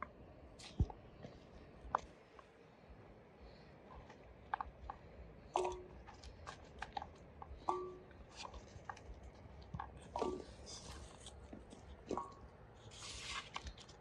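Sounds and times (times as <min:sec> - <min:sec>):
metal pot ringing: 0:05.6 - 0:05.9, 0:07.7 - 0:08.1.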